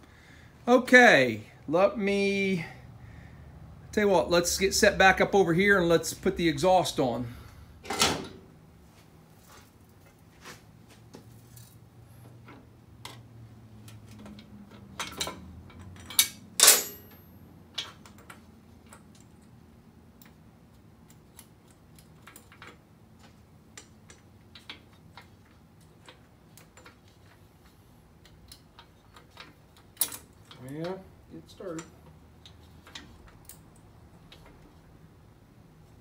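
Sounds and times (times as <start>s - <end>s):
clicks and clinks of metal parts: 13.8s - 19.6s, 28.2s - 31.0s, 31.6s - 34.6s.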